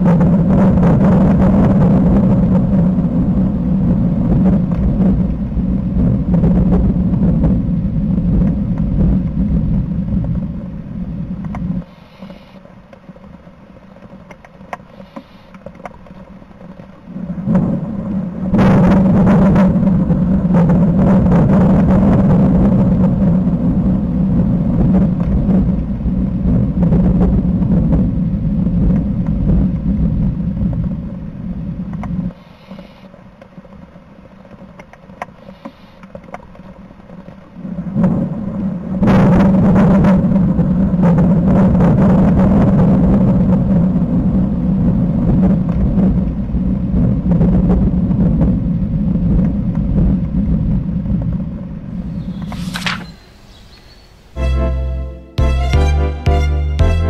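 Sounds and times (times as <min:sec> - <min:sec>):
thunder crack: 0:00.0 - 0:10.6
thunder rumbling: 0:00.0 - 0:11.8, 0:17.0 - 0:31.9.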